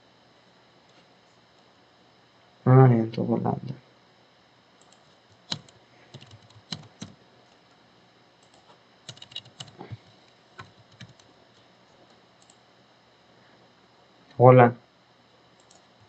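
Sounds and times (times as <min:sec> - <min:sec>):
keyboard typing: 0:04.8 - 0:07.2, 0:08.4 - 0:09.9, 0:10.6 - 0:11.3, 0:12.4 - 0:12.6, 0:15.6 - 0:15.9.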